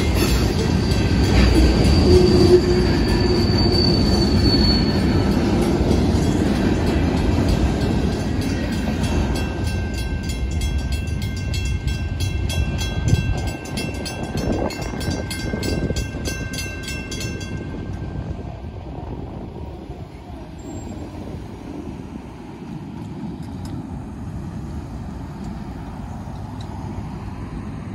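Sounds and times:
crossing warning bell ringing: 0.0 - 18.8
freight cars rumbling: 0.0 - 27.9.

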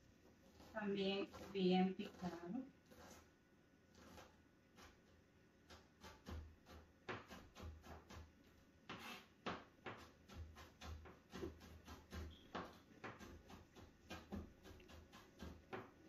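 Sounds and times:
knife chopping on cutting board: 1.3 - 1.5, 5.7 - 8.3, 8.9 - 16.0.

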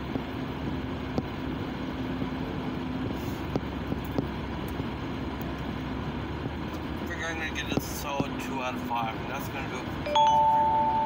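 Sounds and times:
low hum inside car cabin: 0.0 - 11.0
faint steady tone: 10.1 - 11.0.

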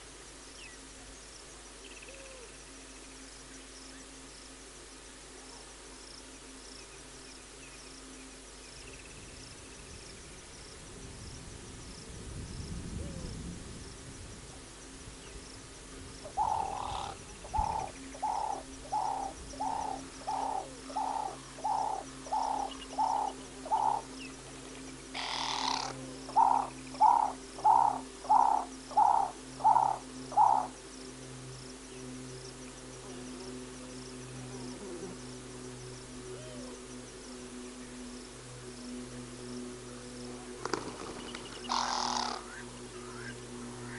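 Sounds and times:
faint insect ticking: 0.0 - 43.9
bird hooting: 1.8 - 2.8, 16.2 - 24.4, 25.1 - 30.8, 34.4 - 35.3, 36.2 - 36.9, 41.2 - 43.9.

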